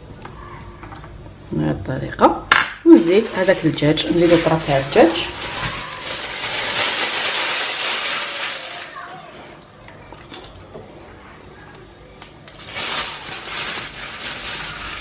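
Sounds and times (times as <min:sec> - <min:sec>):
plastic bag rustling: 0:02.9 - 0:09.4, 0:12.4 - 0:15.0.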